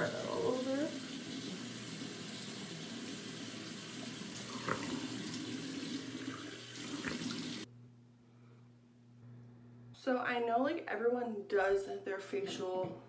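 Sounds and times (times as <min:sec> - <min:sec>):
tap water running: 0:00.0 - 0:07.7
water splashing: 0:00.0 - 0:07.7.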